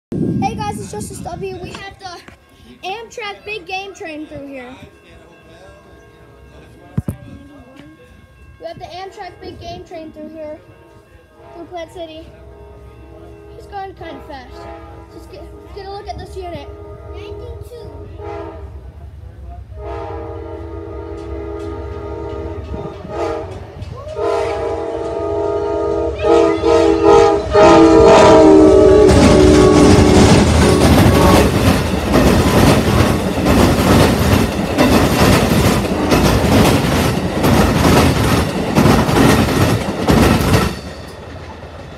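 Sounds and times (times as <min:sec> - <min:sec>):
train rumbling over rail joints: 0:00.1 - 0:41.9
train air horn blasts: 0:12.5 - 0:15.9, 0:16.6 - 0:19.0, 0:19.6 - 0:31.7.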